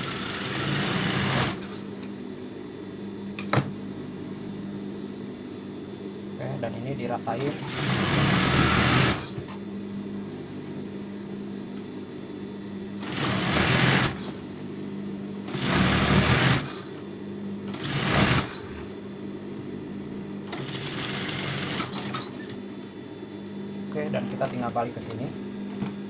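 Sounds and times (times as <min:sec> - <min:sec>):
sewing machine stitching: 0:15.5 - 0:16.9, 0:17.7 - 0:18.8.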